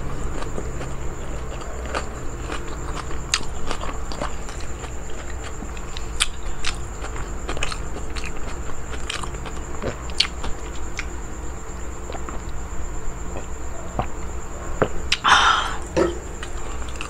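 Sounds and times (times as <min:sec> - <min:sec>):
person chewing food: 0:00.0 - 0:11.2, 0:11.8 - 0:12.6.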